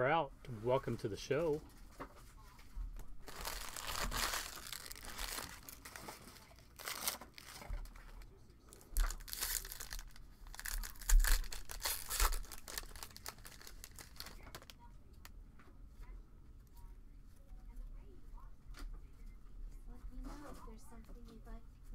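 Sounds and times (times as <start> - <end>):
foil wrapper crinkling and tearing: 3.0 - 14.8.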